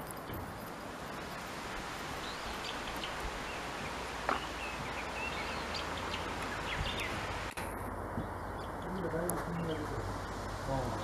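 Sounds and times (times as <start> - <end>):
steady rustling hiss: 0.0 - 11.0
bird chirps: 2.1 - 7.4, 8.2 - 11.0.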